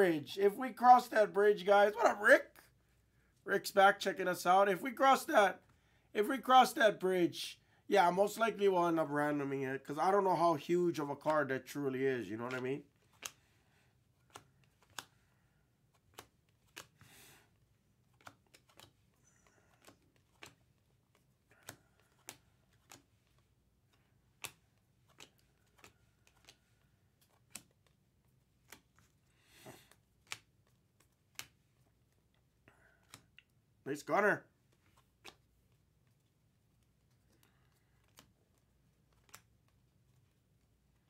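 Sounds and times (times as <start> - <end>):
cards rustling: 0.4 - 7.2, 8.0 - 41.0
cards clicking: 10.6 - 41.0.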